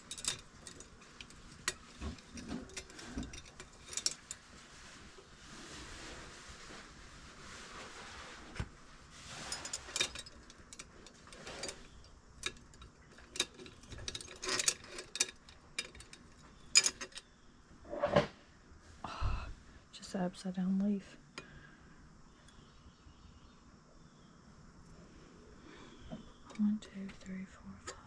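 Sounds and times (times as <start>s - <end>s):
glass stems clinking: 0.0s - 4.5s, 9.3s - 17.2s
soft rustle: 0.4s - 17.0s.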